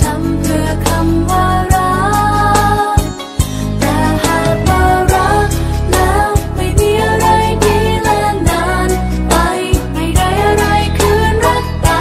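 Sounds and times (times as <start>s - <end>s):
steady bass: 3.6s - 8.6s
person singing: 3.7s - 8.6s
drum hits: 4.2s - 5.6s.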